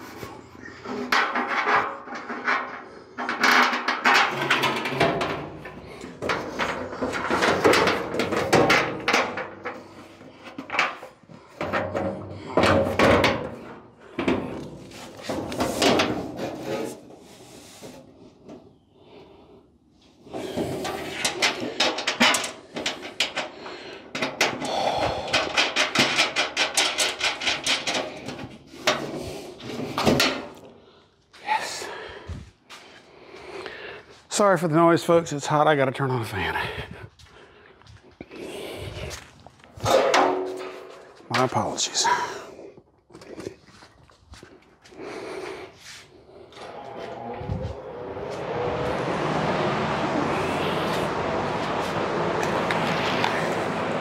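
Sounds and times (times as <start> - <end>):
sheet metal parts clattering: 0.8 - 17.1, 20.4 - 30.7, 39.8 - 41.6.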